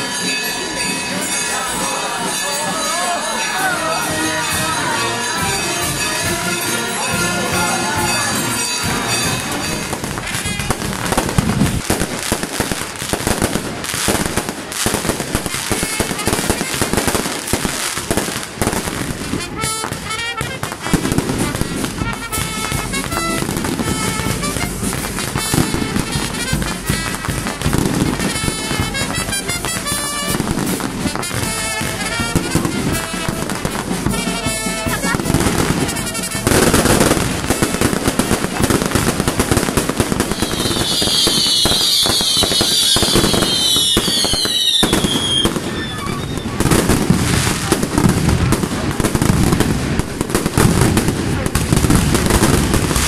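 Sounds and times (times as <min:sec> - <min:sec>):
music playing: 0:00.0 - 0:11.6, 0:19.2 - 0:46.4
fireworks bangs and crackling: 0:00.0 - 0:53.0.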